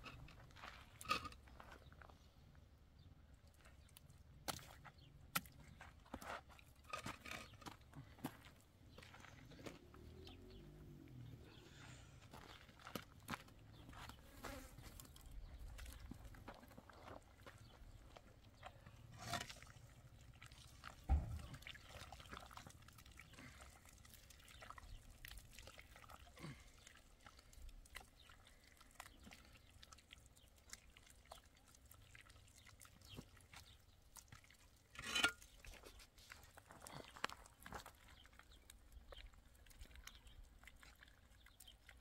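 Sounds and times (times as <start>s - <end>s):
concrete blocks knocking and scraping: 35.0s - 35.6s.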